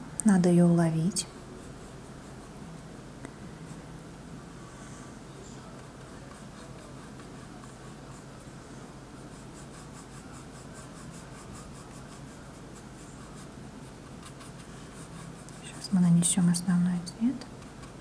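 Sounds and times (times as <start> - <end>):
steady low hum: 0.0 - 18.0
paintbrush scratching on canvas: 5.6 - 8.6, 9.2 - 16.0.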